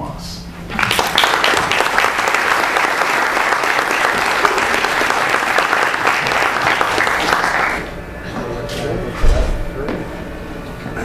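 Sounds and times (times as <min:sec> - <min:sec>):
audience applauding: 0:00.7 - 0:08.0.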